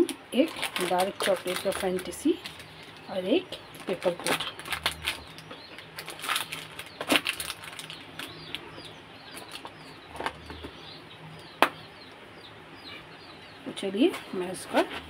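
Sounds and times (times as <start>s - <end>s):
plastic containers rustling: 0.0s - 11.0s.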